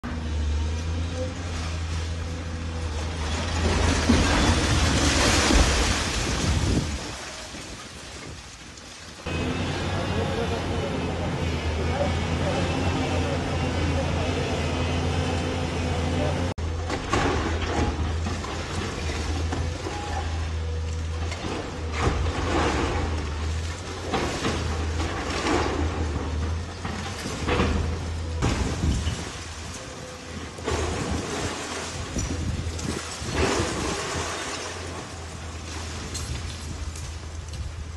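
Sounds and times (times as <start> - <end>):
excavator diesel engine running: 0.0 - 7.0, 9.3 - 35.8
concrete rubble crashing down: 3.2 - 8.8.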